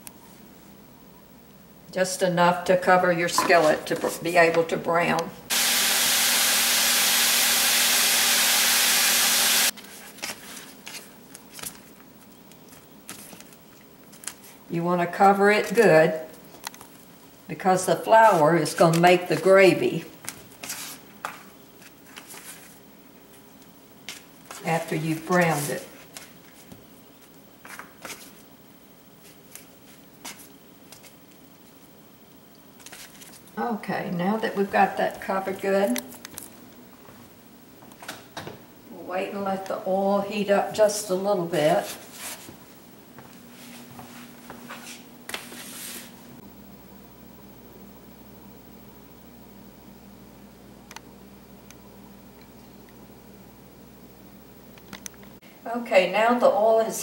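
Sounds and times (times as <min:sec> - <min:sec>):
loud steady hiss: 0:05.4 - 0:09.7.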